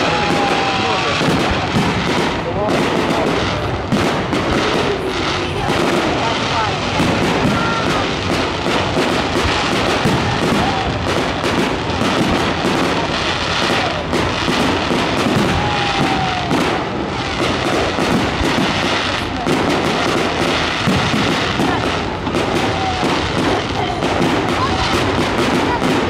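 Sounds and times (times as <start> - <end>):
falling firework whistle: 0.0 - 2.4, 7.0 - 18.8
fireworks bursts and crackling: 0.0 - 26.0.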